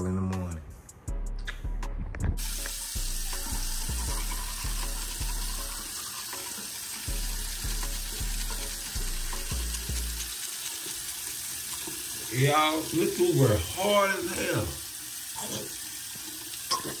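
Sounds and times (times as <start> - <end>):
background music with deep bass: 0.0 - 10.3
sink tap running: 2.4 - 17.0.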